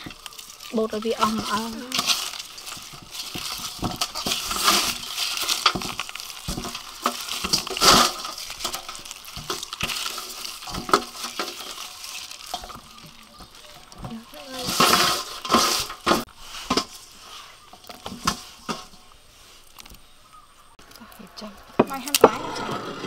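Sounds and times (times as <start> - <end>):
wet rustling and squelching: 0.0 - 21.0.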